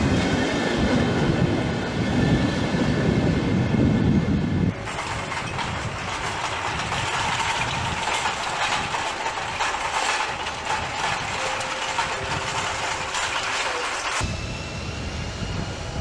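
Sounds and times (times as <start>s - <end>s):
towed trolleys rattling: 0.0s - 14.3s
electric locomotive hum and whine: 0.0s - 16.0s.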